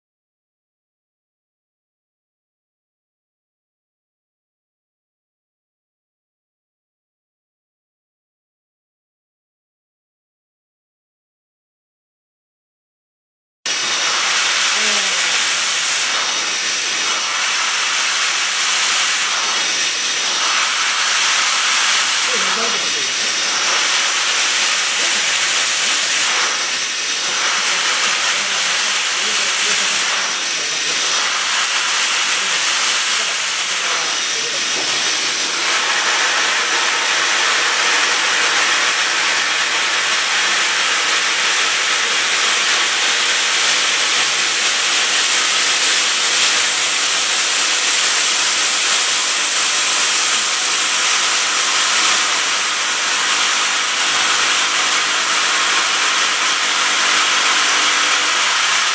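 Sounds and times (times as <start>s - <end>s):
drill hissing into metal: 13.7s - 58.9s.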